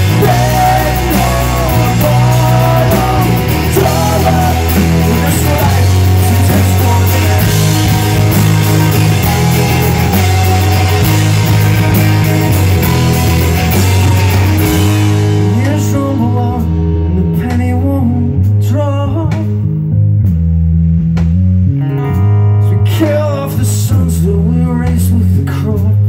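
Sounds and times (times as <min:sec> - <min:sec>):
man singing: 0:00.0 - 0:11.6, 0:15.3 - 0:19.7, 0:22.6 - 0:26.0
bass guitar: 0:00.0 - 0:26.0
drums: 0:00.0 - 0:26.0
electric guitars: 0:00.0 - 0:26.0.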